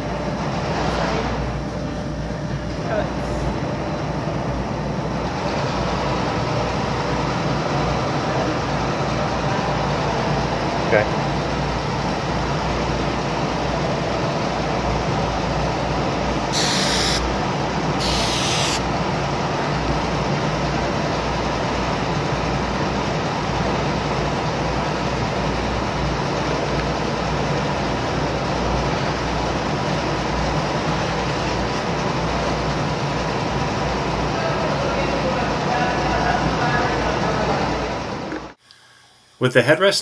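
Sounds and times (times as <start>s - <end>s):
background machinery hum: 0.0s - 40.0s
aerosol spray can hisses: 16.6s - 17.2s, 18.0s - 18.8s.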